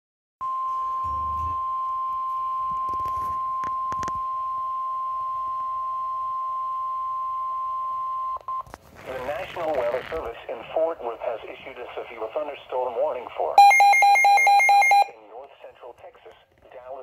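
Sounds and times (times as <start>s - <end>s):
steady high alarm beep: 13.6s - 15.1s.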